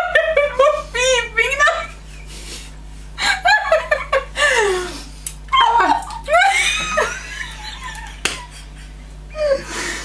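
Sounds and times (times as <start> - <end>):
women laughing hard: 3.2 - 4.9, 5.6 - 10.0.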